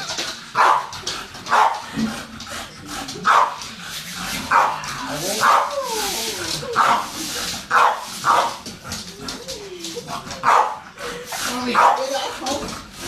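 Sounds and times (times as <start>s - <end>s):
dog barking: 0.6s - 0.9s, 1.5s - 1.8s, 3.3s - 3.6s, 4.5s - 4.8s, 7.7s - 8.6s, 10.4s - 10.8s, 11.8s - 12.1s.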